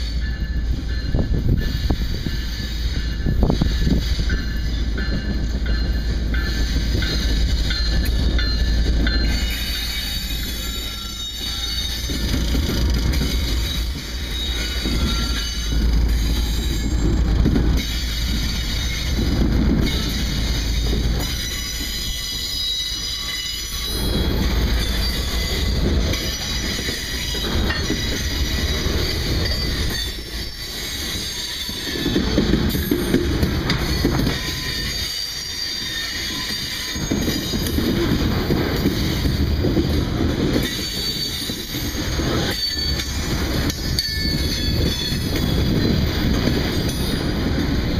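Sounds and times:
diesel locomotive rumble: 0.0 - 35.2
high wheel squeal: 0.0 - 39.7, 40.5 - 47.9
freight cars rolling on rails: 0.0 - 47.9.

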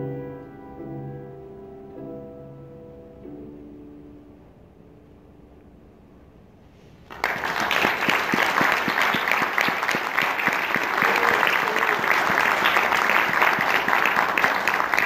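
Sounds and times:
audience applause: 7.1 - 15.0.

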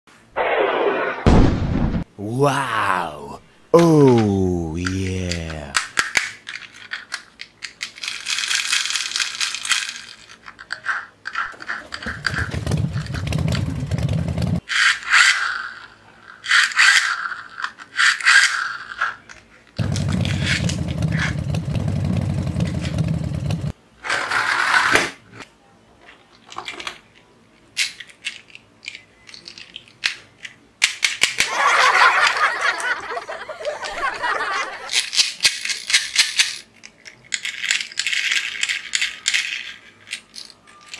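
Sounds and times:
plastic toys clicking and rattling: 5.2 - 13.6, 14.6 - 19.5, 26.1 - 31.5, 34.9 - 40.9
low rattling buzz of spinning parts: 11.9 - 14.6, 19.8 - 23.7.

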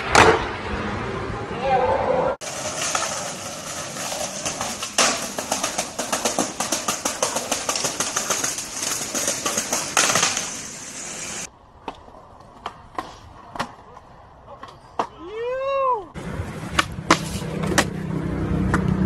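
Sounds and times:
skateboard impacts: 0.0 - 0.5, 2.4 - 15.3, 16.5 - 18.0
skateboard wheels rolling on pavement: 0.0 - 19.0.

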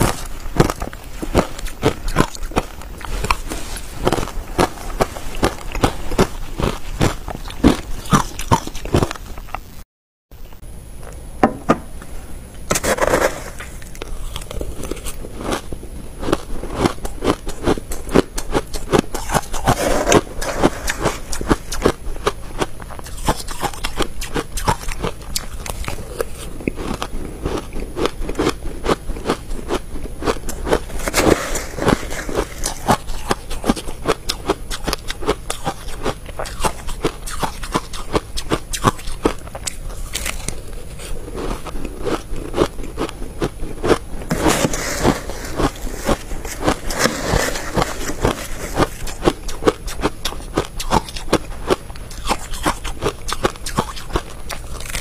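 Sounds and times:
crunching and chewing ice: 0.0 - 9.8, 12.7 - 55.0
spoon scraping ice: 19.1 - 21.9, 30.5 - 33.9, 44.3 - 49.6.

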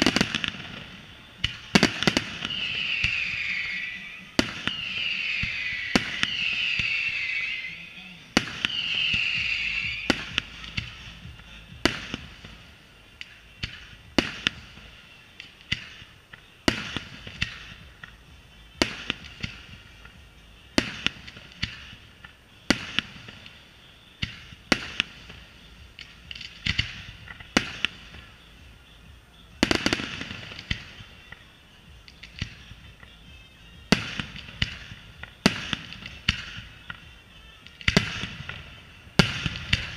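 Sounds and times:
bright hiss: 0.0 - 32.7
fireworks bursting: 0.0 - 39.9.

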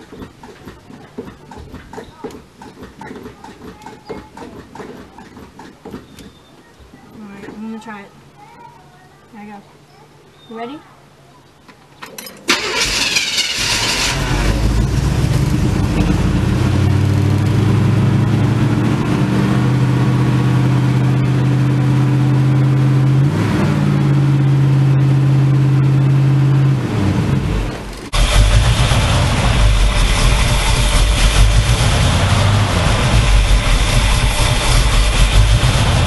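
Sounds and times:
pickup engine starting and running: 12.4 - 36.0.

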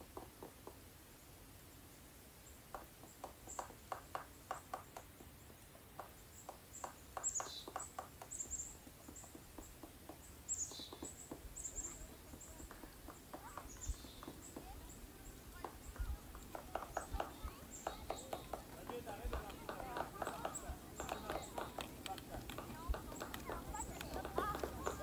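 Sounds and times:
birds chirping: 2.2 - 25.0
soft clicks and taps: 15.5 - 25.0.

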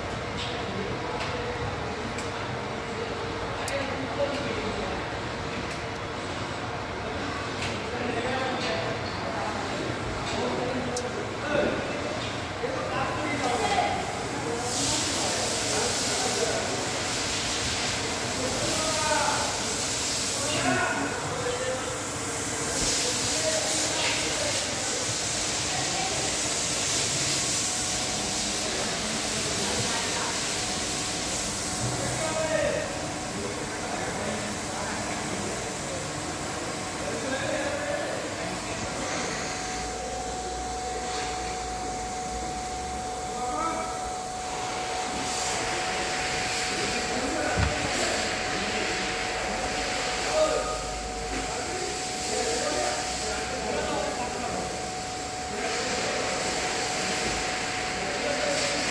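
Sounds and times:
steady workshop hiss: 0.0 - 58.9
faint voices: 0.2 - 58.9
parking sensor warning tone: 38.4 - 58.9.

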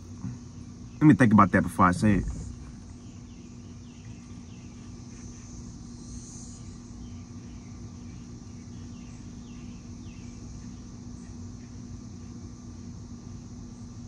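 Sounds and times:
low hum: 0.0 - 7.2
high even drone: 1.0 - 3.0.

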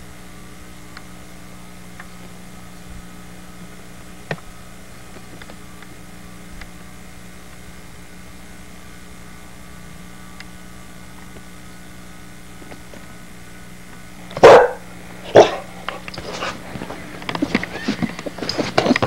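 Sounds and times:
steady low hum: 0.0 - 19.0
puppy barking sharply: 14.4 - 15.7.

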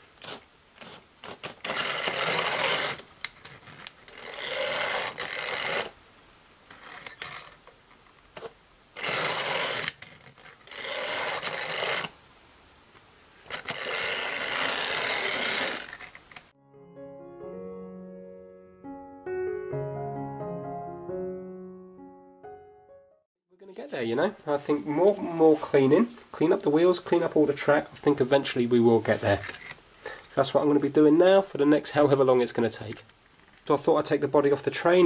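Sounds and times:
toy train motor buzzing: 1.6 - 3.0, 4.1 - 6.0, 9.0 - 12.2, 13.4 - 16.4
piano music: 16.6 - 23.3.

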